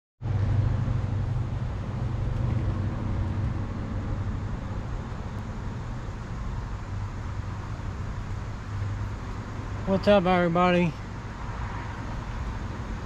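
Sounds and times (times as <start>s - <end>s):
vehicle engine humming: 0.2s - 13.0s
outdoor hiss: 1.1s - 13.0s.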